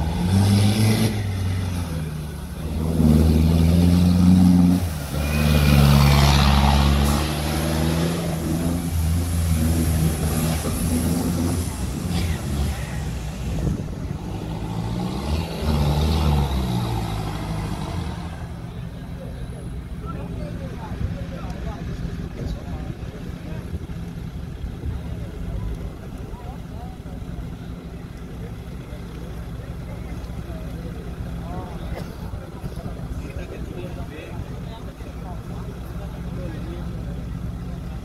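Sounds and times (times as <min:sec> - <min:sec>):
engine revving: 0:00.0 - 0:18.8.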